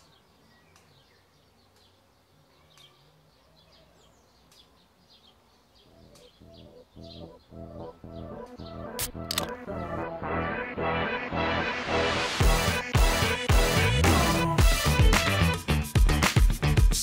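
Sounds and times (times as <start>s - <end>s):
faint birdsong chirps: 0.0s - 10.2s
low pulsing music beat: 6.0s - 17.0s.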